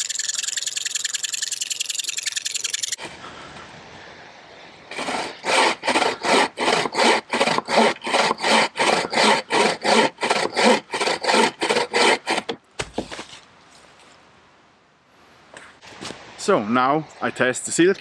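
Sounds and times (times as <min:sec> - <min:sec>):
saw rasping through log: 0:04.9 - 0:12.6.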